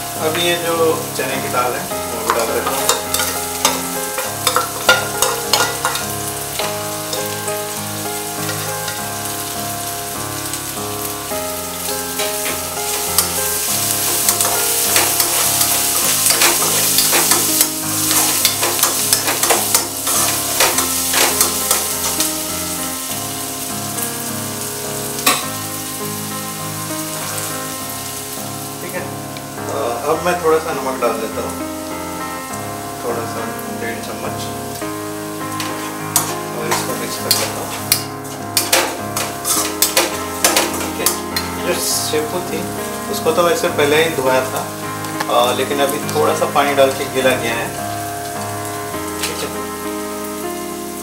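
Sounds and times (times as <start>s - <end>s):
food sizzling in hot oil: 0.0s - 51.0s
spatula scraping a pan: 2.1s - 9.1s, 11.9s - 22.4s, 35.4s - 41.8s.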